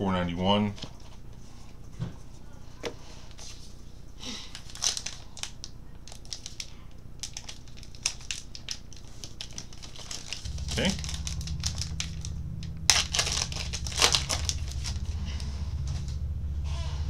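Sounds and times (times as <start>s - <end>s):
wrapper crinkling and tearing: 4.4s - 12.3s, 12.9s - 15.4s.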